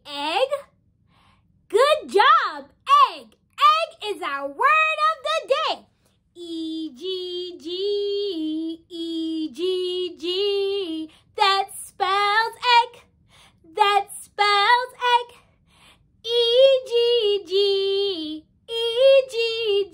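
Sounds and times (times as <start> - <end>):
woman singing unaccompanied: 6.4 - 13.0, 13.7 - 15.4, 16.3 - 19.9.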